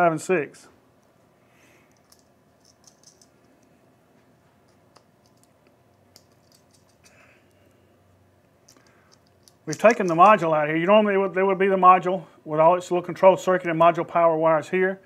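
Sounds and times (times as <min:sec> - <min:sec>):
faint metal parts clicking: 0:01.8 - 0:03.8, 0:04.6 - 0:07.8, 0:08.6 - 0:10.4.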